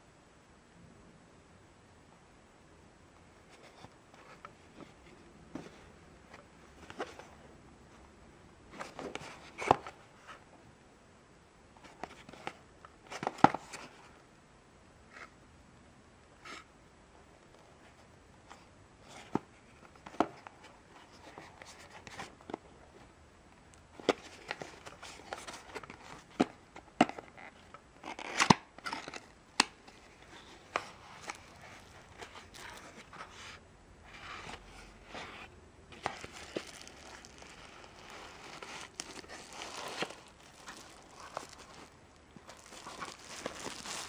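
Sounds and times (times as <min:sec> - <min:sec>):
plastic wrapping crinkling: 0:29.9 - 0:33.3, 0:35.9 - 0:44.0.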